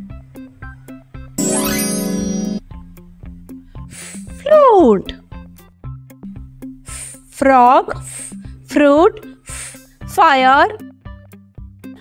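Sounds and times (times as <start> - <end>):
children's music plucked notes: 1.4 - 2.6
loud steady held tone: 1.4 - 2.6.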